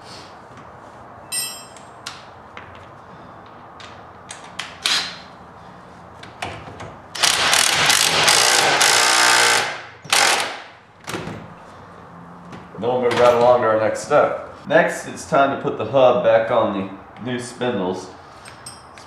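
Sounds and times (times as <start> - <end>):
metal tools clinking: 1.3 - 2.0, 18.4 - 19.0
impact driver hammering: 7.2 - 10.7.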